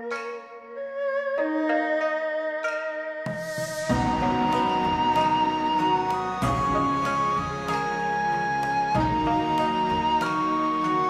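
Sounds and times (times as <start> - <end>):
slow melody of held notes: 0.0 - 11.0.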